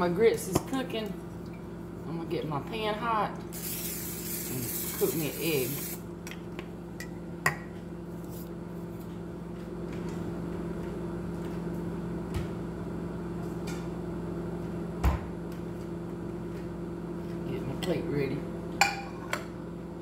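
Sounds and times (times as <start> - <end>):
microwave oven humming: 0.0 - 20.0.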